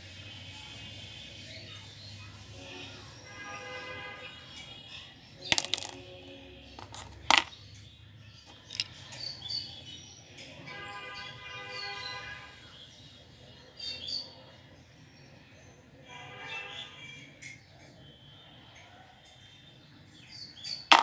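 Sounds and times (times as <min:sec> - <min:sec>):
plastic toys clicking in basket: 0:05.5 - 0:06.1, 0:06.8 - 0:07.6, 0:08.5 - 0:09.0.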